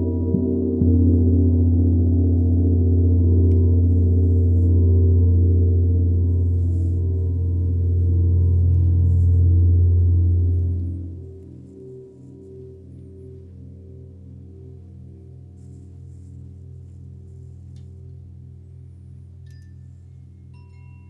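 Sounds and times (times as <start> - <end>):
gong struck with soft mallet: 0.0 - 13.9.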